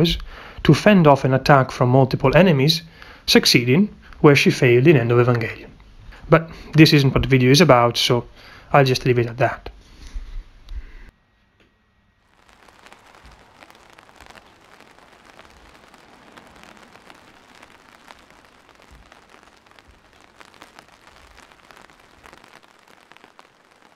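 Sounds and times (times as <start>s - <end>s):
steady rain: 12.2s - 23.9s.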